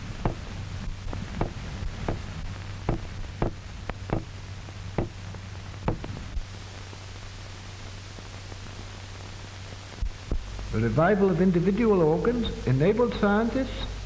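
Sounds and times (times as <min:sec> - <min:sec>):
sharp knocks: 0:00.0 - 0:00.6, 0:01.2 - 0:04.4, 0:05.0 - 0:05.2, 0:05.9 - 0:06.2
film soundtrack hum and hiss: 0:00.0 - 0:14.0.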